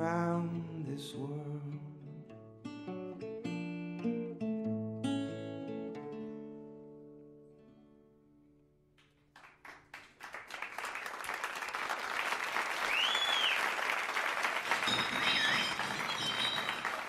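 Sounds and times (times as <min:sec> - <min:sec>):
audience applauding: 0:09.3 - 0:17.0
crowd whistles: 0:12.6 - 0:17.0.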